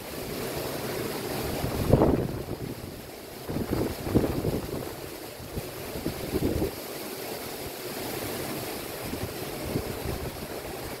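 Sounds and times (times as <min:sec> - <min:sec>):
heavy surf breaking: 0:00.0 - 0:11.0
wind buffeting microphone: 0:01.4 - 0:06.8, 0:09.0 - 0:11.0.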